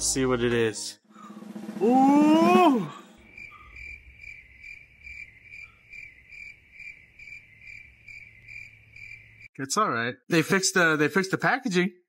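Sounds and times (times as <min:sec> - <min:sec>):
cricket chirping: 0:03.1 - 0:09.5.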